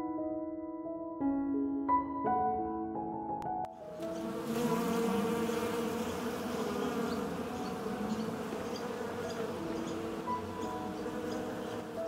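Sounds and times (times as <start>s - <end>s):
bees buzzing in a swarm: 3.8s - 12.0s.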